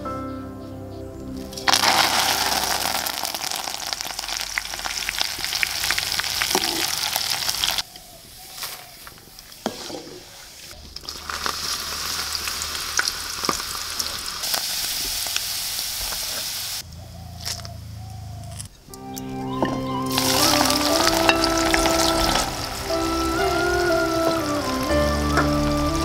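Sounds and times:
leaves sizzling in hot oil: 1.5 - 7.8, 10.9 - 16.8, 20.1 - 26.0.

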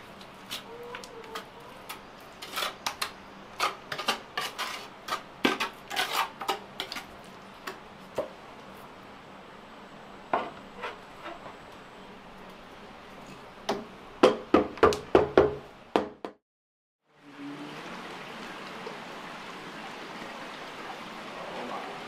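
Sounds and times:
trowel scraping ceramic tile: 2.4 - 7.1.

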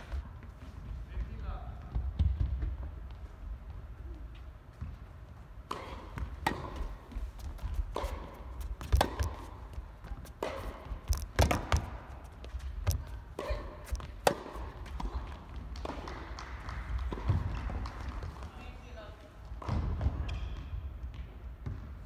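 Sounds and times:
tennis ball bouncing on court: 4.8 - 22.0
tennis ball struck by rackets: 5.6 - 18.4.

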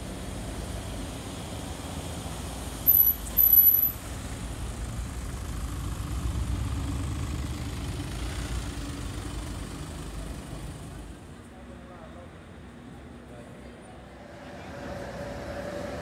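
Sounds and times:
car engine rumble driving away: 4.1 - 11.2.

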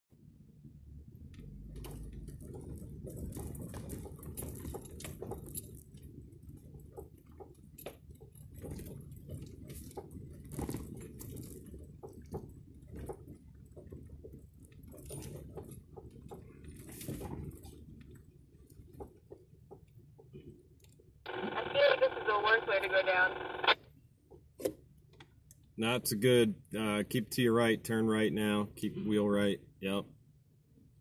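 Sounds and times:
vehicle rumbling on dirt trail: 0.9 - 7.2
rattles and knocks over bumps: 1.1 - 21.2.

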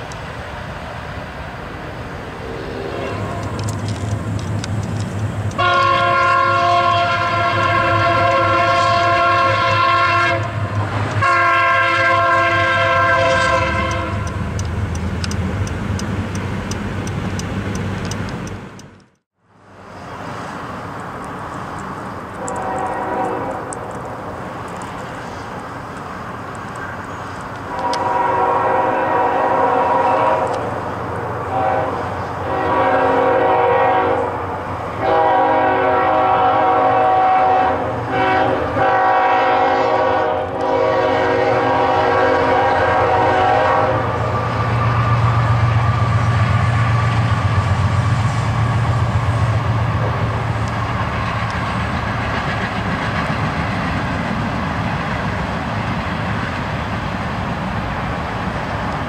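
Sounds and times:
train wheels rolling: 0.0 - 11.4, 12.1 - 59.0
locomotive engine rumbling: 0.0 - 59.0
train air horn blasts: 5.6 - 10.6, 11.2 - 14.4, 22.4 - 23.8, 27.7 - 30.7, 31.4 - 34.4, 35.0 - 44.6.

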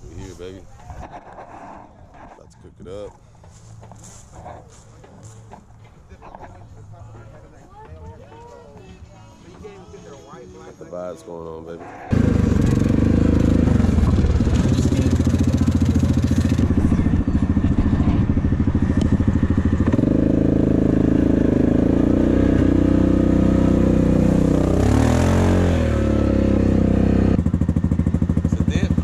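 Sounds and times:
atv engine running: 12.0 - 29.0.

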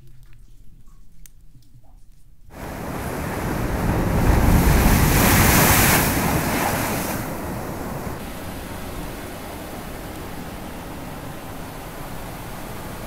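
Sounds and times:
geyser water rushing: 2.5 - 13.0.

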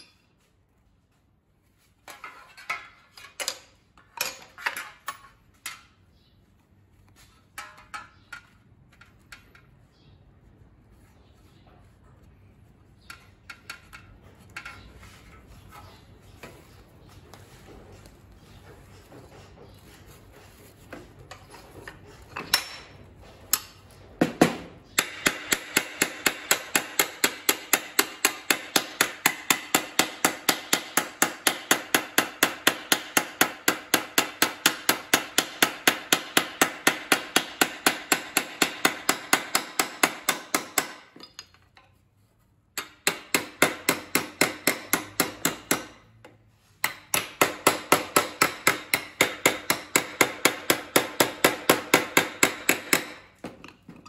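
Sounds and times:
hammer striking sheet steel: 23.5 - 41.3, 46.8 - 53.4.

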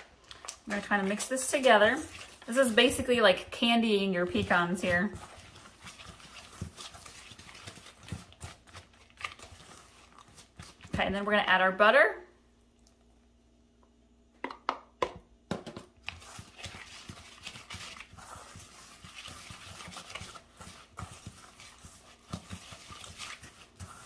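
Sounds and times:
spatula scraping metal bowl: 0.7 - 10.9, 16.1 - 24.0
knocks and taps: 14.4 - 15.9.

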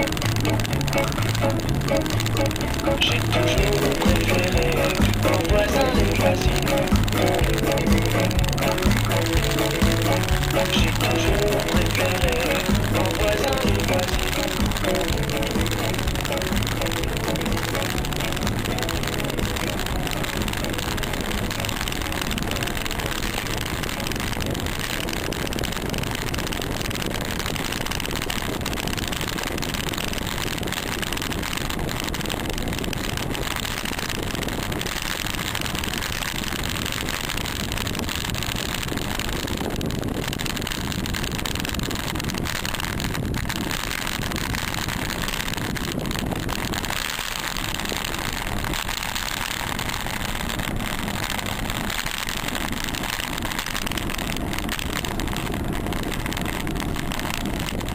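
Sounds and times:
road noise: 0.0 - 57.9
wind rushing on microphone: 13.2 - 57.9.

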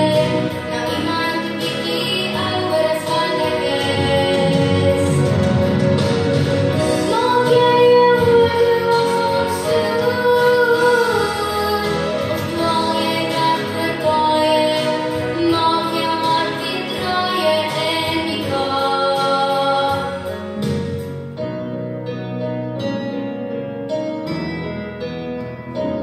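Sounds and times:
woman singing: 0.0 - 5.8, 6.8 - 20.5
instrumental accompaniment: 0.0 - 26.0.

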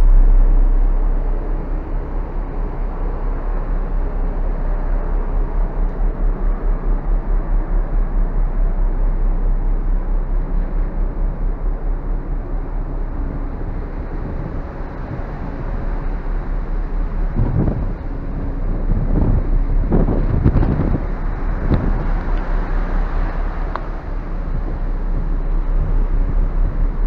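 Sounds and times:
ship running noise and wake: 0.0 - 27.0
wind buffeting microphone: 0.0 - 27.0.

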